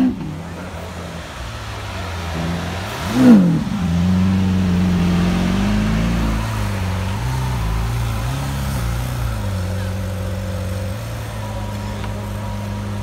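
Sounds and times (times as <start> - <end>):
car engine idling and revving: 0.0 - 13.0.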